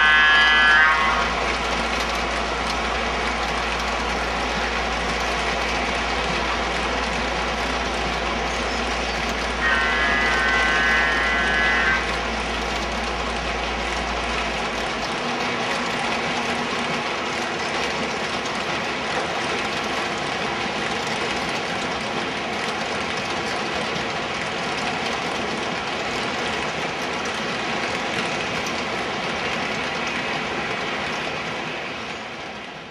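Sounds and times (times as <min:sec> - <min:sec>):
model train wheels clattering: 0:00.0 - 0:32.9.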